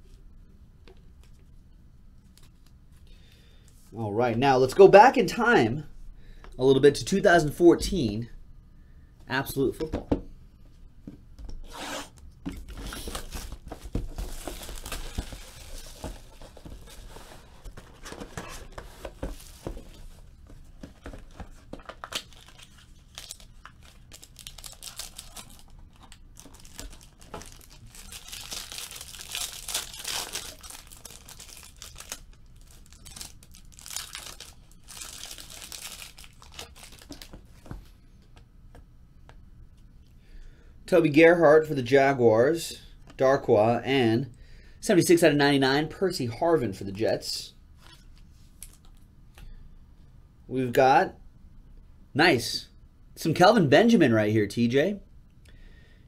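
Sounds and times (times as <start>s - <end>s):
plastic wrap tearing and crinkling: 12.6s - 17.2s, 21.8s - 37.4s.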